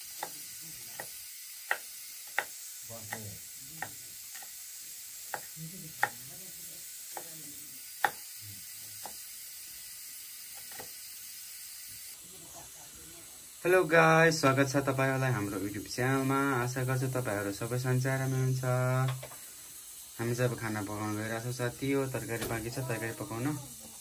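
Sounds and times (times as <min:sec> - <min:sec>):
steady hiss: 0:00.0 - 0:24.0
knife chopping on wooden board: 0:00.2 - 0:04.5, 0:05.3 - 0:06.2, 0:08.0 - 0:08.2.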